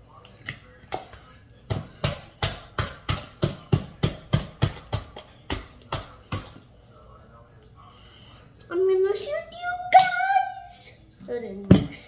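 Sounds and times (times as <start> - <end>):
sharp taps on hard plastic: 1.7 - 6.6.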